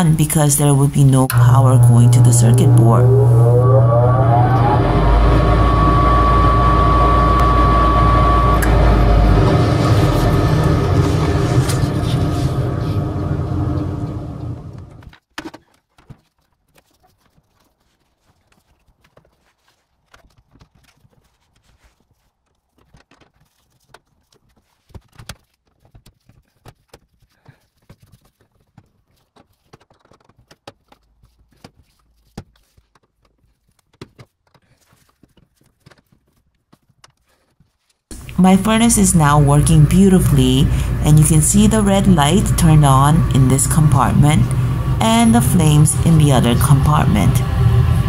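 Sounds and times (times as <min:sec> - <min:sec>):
loud steady hum: 0:00.0 - 0:15.1, 0:38.1 - 0:48.0.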